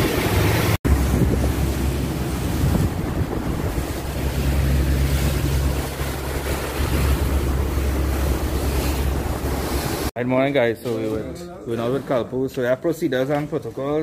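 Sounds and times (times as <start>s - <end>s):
boat engine humming: 0.0s - 10.1s
water rushing past hull: 0.0s - 10.1s
wind buffeting microphone: 0.0s - 10.1s.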